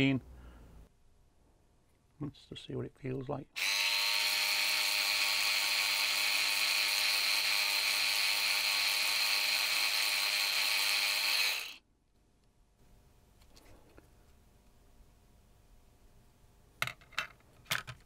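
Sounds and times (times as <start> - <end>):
electric cleaning brush buzzing: 3.6 - 11.8.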